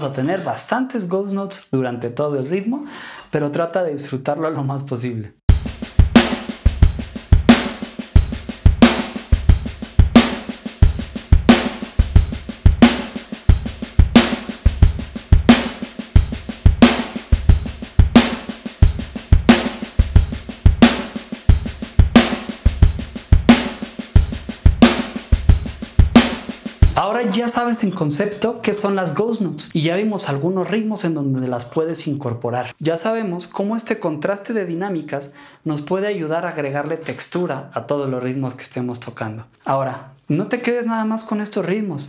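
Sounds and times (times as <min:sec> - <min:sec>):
electronic drum kit groove: 0:05.5 - 0:27.9.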